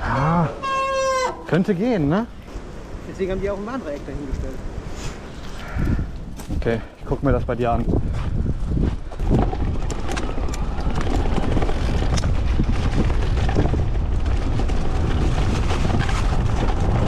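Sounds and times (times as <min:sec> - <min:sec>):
bike tyre rumble: 0:00.0 - 0:17.0
wind rush on microphone: 0:01.6 - 0:17.0
bike clicks and rattles: 0:08.7 - 0:17.0.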